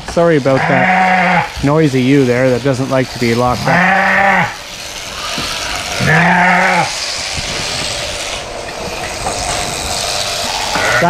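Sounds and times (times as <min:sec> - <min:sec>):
sheep bleating: 0:00.5 - 0:01.6, 0:03.5 - 0:07.1, 0:10.4 - 0:11.0
shearing handpiece running: 0:01.4 - 0:11.0.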